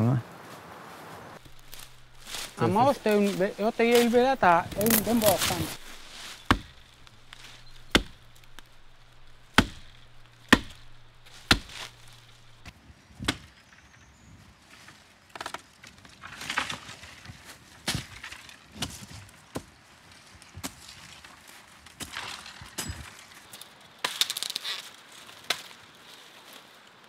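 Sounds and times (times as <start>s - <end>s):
branches and dry leaves rustling: 0.0s - 27.0s
axe chopping wood: 1.4s - 13.4s.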